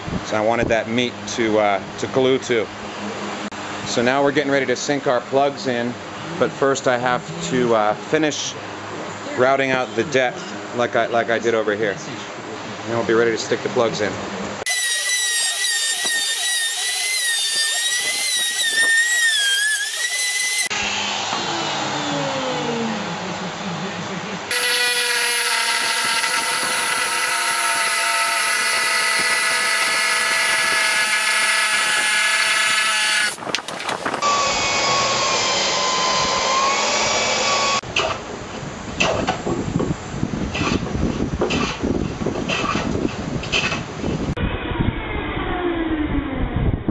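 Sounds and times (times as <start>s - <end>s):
reciprocating saw cutting wood: 14.6s - 23.0s, 24.5s - 37.8s
router cutting wood: 14.6s - 23.1s, 24.5s - 37.8s.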